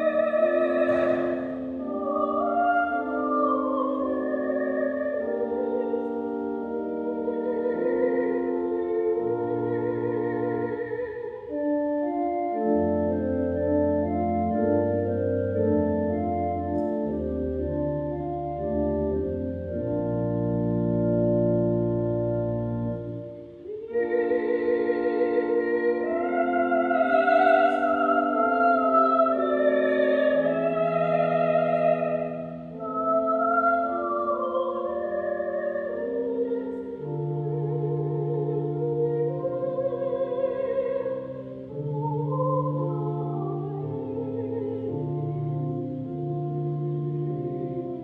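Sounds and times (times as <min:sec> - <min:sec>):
soprano singing with vibrato: 0:00.0 - 0:11.6, 0:23.6 - 0:45.2
pipe organ chords: 0:00.0 - 0:48.0.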